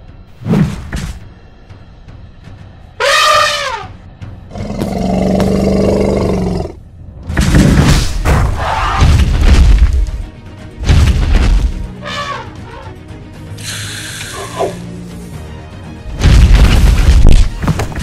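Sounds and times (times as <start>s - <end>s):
background music: 0.0s - 18.0s
elephant-like trumpeting call: 3.0s - 4.0s, 12.0s - 13.0s, 13.6s - 14.8s
low growling roar: 4.5s - 6.8s.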